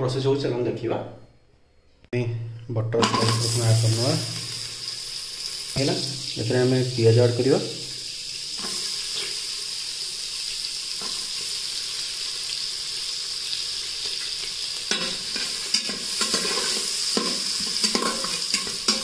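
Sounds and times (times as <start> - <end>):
onions sizzling in butter: 3.1 - 19.0
spatula scraping and tapping pot: 14.9 - 19.0.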